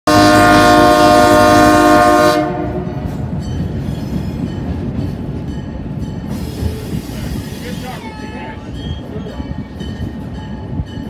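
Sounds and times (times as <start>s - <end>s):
train air horn chord: 0.1s - 3.0s
train rumbling: 0.1s - 11.0s.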